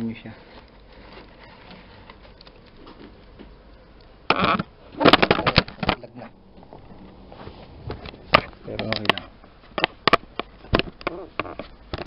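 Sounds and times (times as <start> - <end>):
microphone handling noise: 4.4 - 11.8
loud rustling scrape: 6.2 - 9.0.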